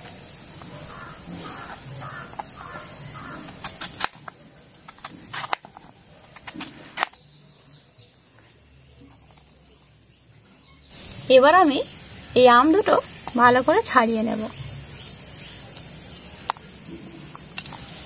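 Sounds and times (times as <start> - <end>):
knife cutting watermelon: 0.6 - 7.2
crows cawing: 0.8 - 3.6.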